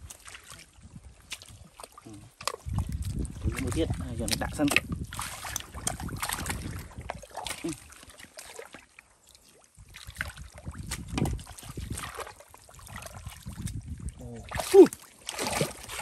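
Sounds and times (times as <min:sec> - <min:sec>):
hands splashing in muddy water: 0:00.0 - 0:16.0
mud squelching: 0:00.0 - 0:16.0.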